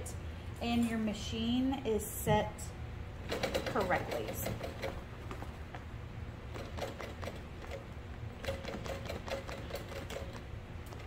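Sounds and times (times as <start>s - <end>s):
sewing machine motor hum: 6.4s - 11.0s.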